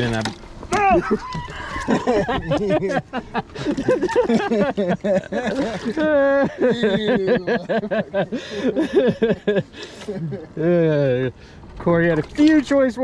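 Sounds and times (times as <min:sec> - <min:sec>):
people laughing: 0:00.8 - 0:11.3
people talking: 0:01.9 - 0:03.2, 0:04.3 - 0:13.0.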